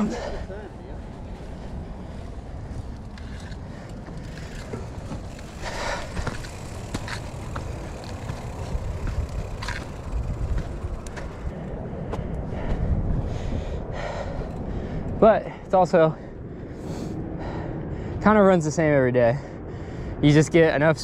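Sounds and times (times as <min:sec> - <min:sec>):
bike clicks and rattles: 0:00.0 - 0:15.2
wind and tyre rumble: 0:00.0 - 0:21.0.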